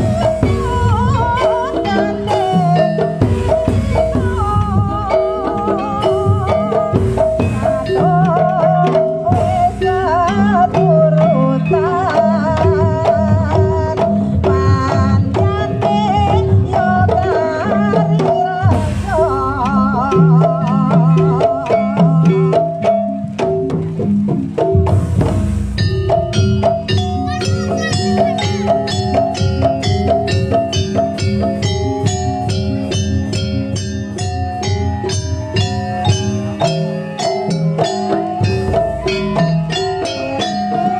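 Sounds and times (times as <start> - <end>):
drums: 0.0 - 40.9
percussion ensemble: 0.0 - 40.9
ringing metal tones: 0.0 - 40.9
wavering melody line: 0.0 - 40.9
metallophone and gong-chime strikes: 24.8 - 40.9.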